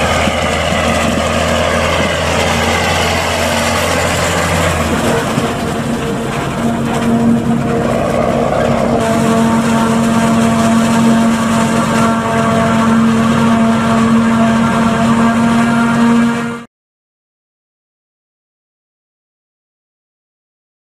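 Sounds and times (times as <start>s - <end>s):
forage harvester chopping corn: 0.0s - 16.6s.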